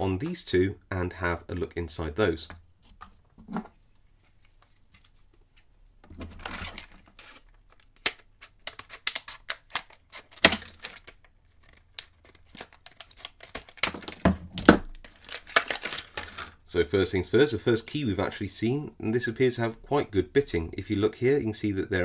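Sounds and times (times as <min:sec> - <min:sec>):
plastic packaging crackling and snapping: 0:06.3 - 0:16.6.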